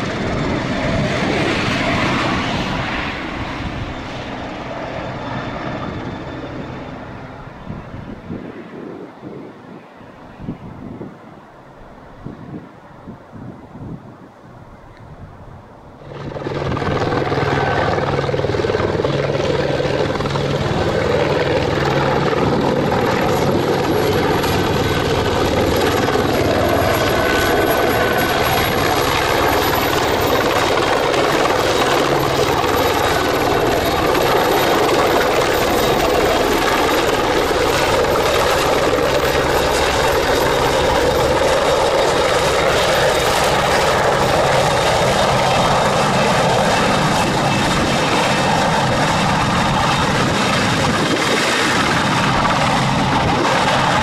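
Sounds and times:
helicopter rotor beating: 0.0s - 8.8s, 16.0s - 54.0s
high turbine whine: 0.0s - 54.0s.

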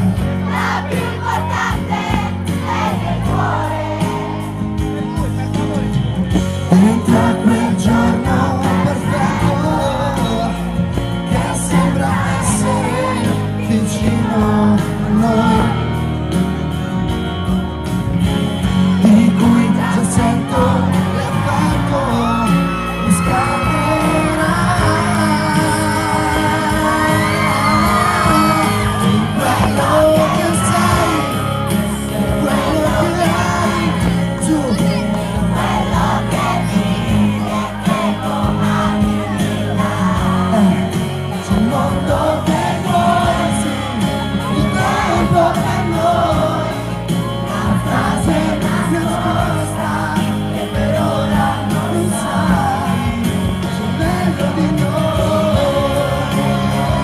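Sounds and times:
crowd shouting and whooping: 0.0s - 57.0s
loud amplified band music: 0.0s - 57.0s
man singing through speakers: 6.4s - 16.2s, 18.9s - 57.0s.

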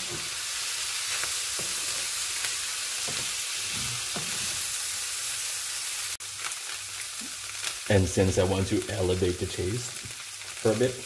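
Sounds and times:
vegetables sizzling in a frying pan: 0.0s - 11.0s
wooden spatula scraping: 3.0s - 4.8s.

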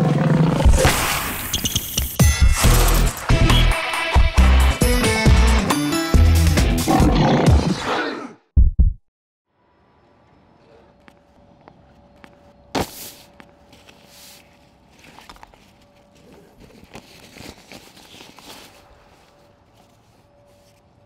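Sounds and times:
fabric rustling: 13.1s - 20.9s.

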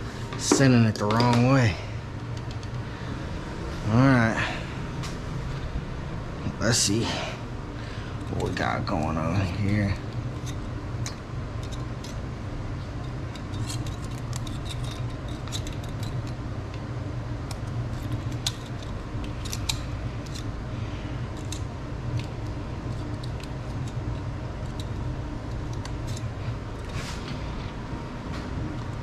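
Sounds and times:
low hum: 0.0s - 29.0s.

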